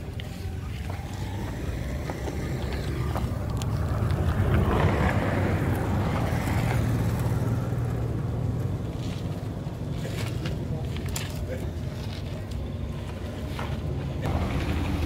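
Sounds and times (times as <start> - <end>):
motor droning: 0.0 - 7.5.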